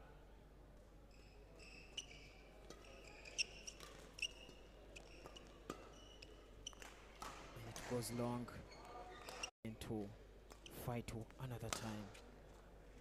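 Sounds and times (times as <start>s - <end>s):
sneakers squeaking on court floor: 1.1s - 8.0s.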